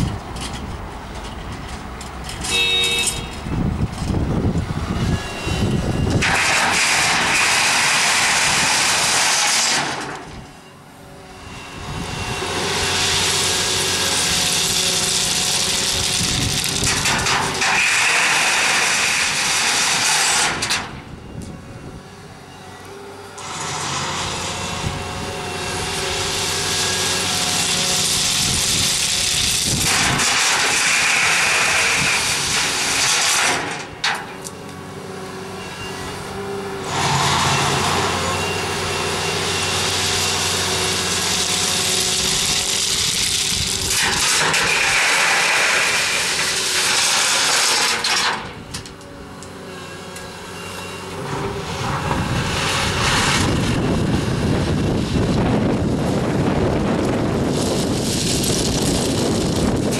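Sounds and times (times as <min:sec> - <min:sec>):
excavator diesel engine running: 0:00.0 - 0:59.9
stones pouring into steel wagon: 0:06.2 - 0:10.2, 0:13.0 - 0:20.8, 0:26.3 - 0:33.9, 0:41.0 - 0:48.5, 0:57.2 - 0:59.9.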